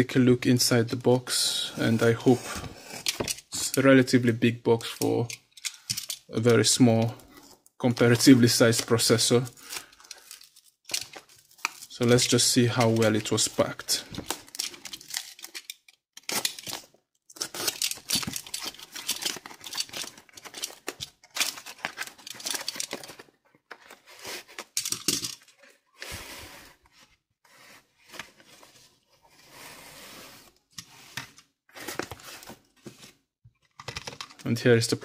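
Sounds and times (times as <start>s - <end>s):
packing tape ripping and crinkling: 14.2s - 23.2s.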